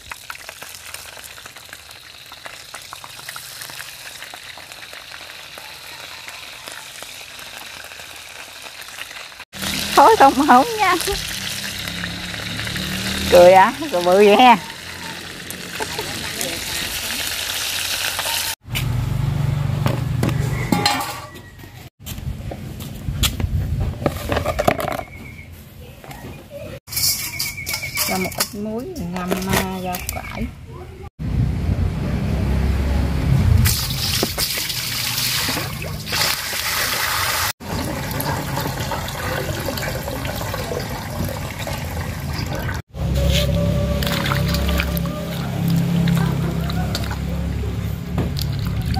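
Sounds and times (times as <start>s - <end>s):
chicken sizzling in oil: 0.0s - 18.6s, 33.6s - 42.6s
hose water pouring into metal basin: 0.0s - 18.6s, 33.6s - 42.8s, 43.9s - 47.2s
low rumble: 31.2s - 33.9s.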